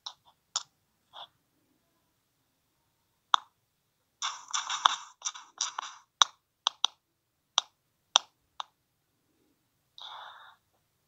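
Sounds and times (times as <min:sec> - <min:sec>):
sharp clicks or taps: 0:04.2 - 0:07.0.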